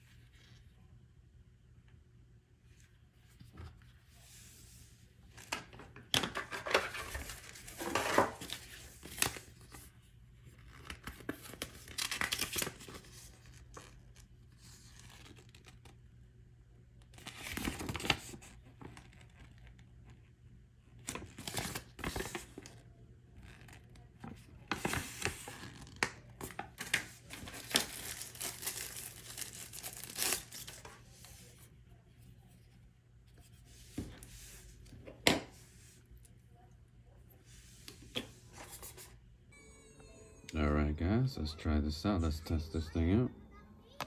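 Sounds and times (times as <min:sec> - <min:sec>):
paper rustling and crinkling: 0:05.3 - 0:09.9, 0:21.0 - 0:22.8, 0:23.4 - 0:31.7.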